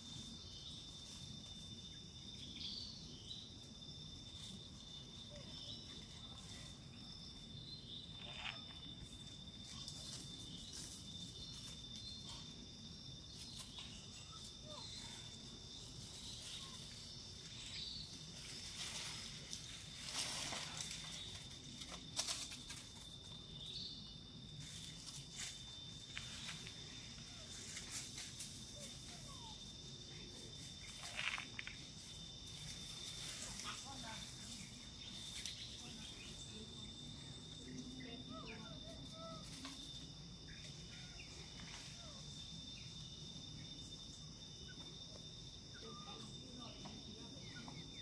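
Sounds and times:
insects droning: 0:00.0 - 0:48.0
faint chirps: 0:13.3 - 0:19.3
rustles and snaps in dry leaves: 0:18.1 - 0:23.3, 0:30.8 - 0:35.8.

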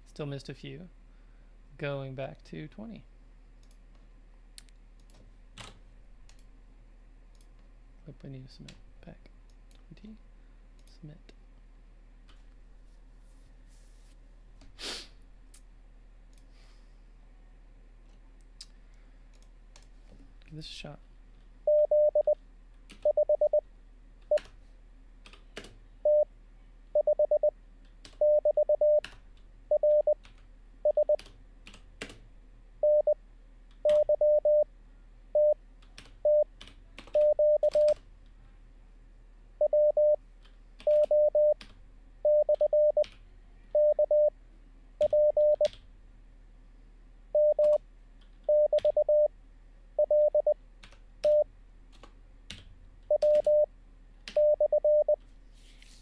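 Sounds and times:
morse code beeps: 0:21.7 - 0:22.4, 0:23.0 - 0:23.6, 0:26.0 - 0:26.3, 0:27.0 - 0:27.5, 0:28.2 - 0:29.0, 0:29.7 - 0:30.2, 0:30.8 - 0:31.2, 0:32.8 - 0:33.2, 0:33.9 - 0:34.7, 0:35.4 - 0:35.6, 0:36.2 - 0:36.5, 0:37.2 - 0:38.0, 0:39.6 - 0:40.2, 0:40.9 - 0:41.6, 0:42.2 - 0:43.0, 0:43.8 - 0:44.3, 0:45.0 - 0:45.6, 0:47.4 - 0:47.8, 0:48.5 - 0:49.3, 0:50.0 - 0:50.6, 0:53.1 - 0:53.7, 0:54.4 - 0:55.2.

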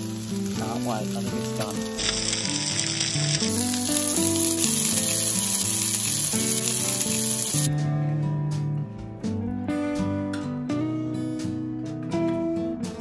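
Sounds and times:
fish sizzling on a griddle: 0:00.0 - 0:07.7
acoustic guitar music: 0:00.0 - 0:13.0.

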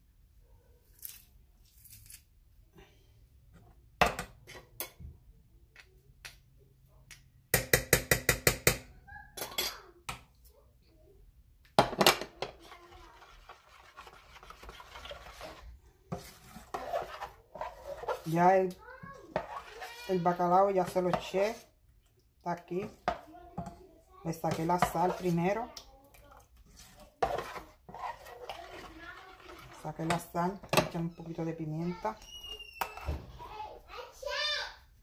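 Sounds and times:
utensil stirring thick batter: 0:12.2 - 0:32.9.

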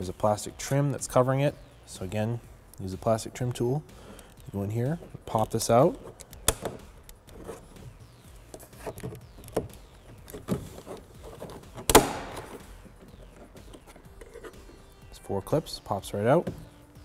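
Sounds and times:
plastic clip snapping: 0:06.1 - 0:07.4, 0:11.6 - 0:12.6
plastic clicks and scrapes: 0:08.5 - 0:14.6.

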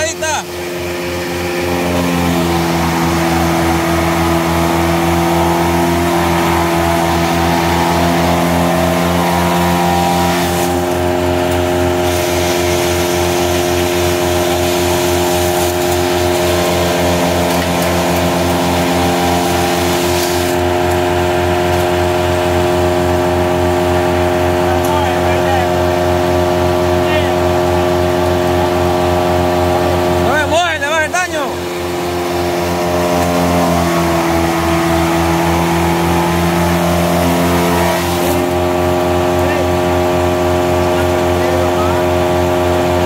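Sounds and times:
tractor diesel engine running: 0:00.0 - 0:43.0.

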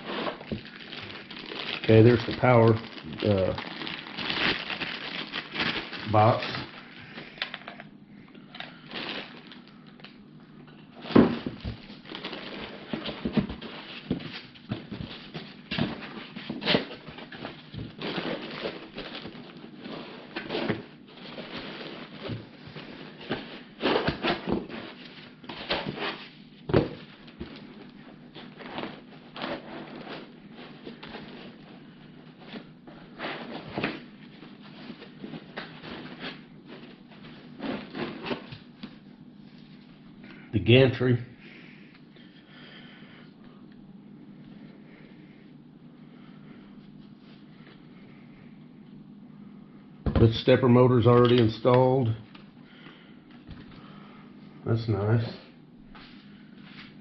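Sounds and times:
plastic bags crinkling: 0:00.0 - 0:07.8, 0:08.5 - 0:10.2, 0:11.0 - 0:26.1.

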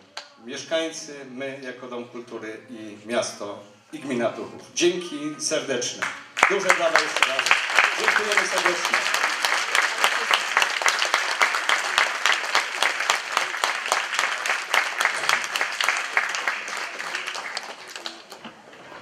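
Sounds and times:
audience applauding: 0:06.0 - 0:19.0.

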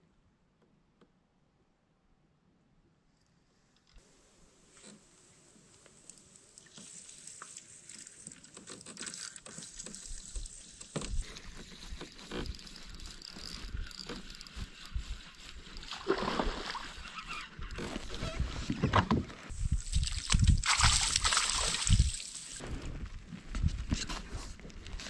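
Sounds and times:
spinning reel cranking: 0:11.8 - 0:15.9
fish splashing: 0:15.8 - 0:17.2, 0:19.7 - 0:22.6.

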